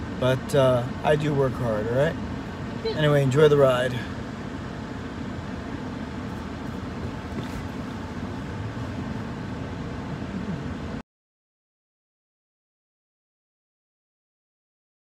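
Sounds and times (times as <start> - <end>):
car engine running: 0.0 - 11.0.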